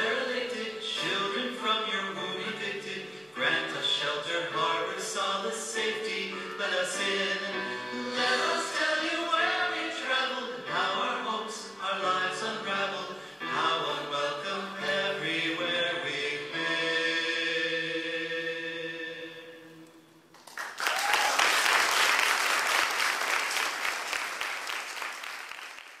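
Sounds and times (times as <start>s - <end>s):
voices singing held chords: 0.0s - 20.3s
audience applause: 20.3s - 26.0s.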